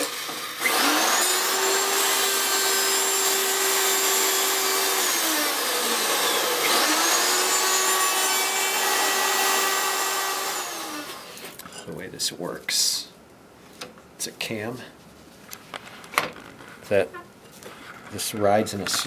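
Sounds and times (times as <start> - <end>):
router motor whine: 0.0 - 11.4
router cutting wood: 0.0 - 11.5.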